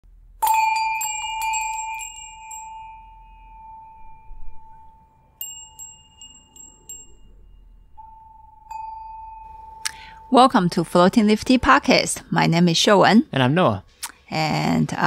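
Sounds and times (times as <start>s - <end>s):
metal chimes ringing: 0.4s - 10.8s.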